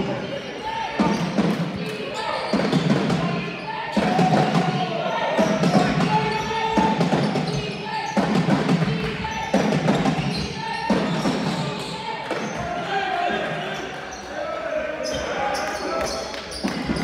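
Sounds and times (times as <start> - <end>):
basketballs bouncing on court: 1.0 - 4.8, 5.4 - 12.6.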